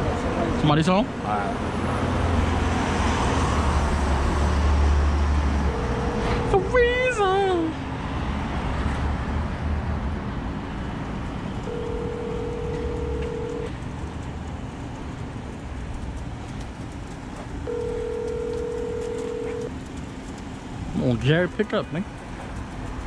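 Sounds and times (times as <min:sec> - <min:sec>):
outdoor background rumble: 0:00.0 - 0:23.0
telephone ringback tone: 0:05.7 - 0:06.5, 0:11.7 - 0:13.7, 0:17.7 - 0:19.7.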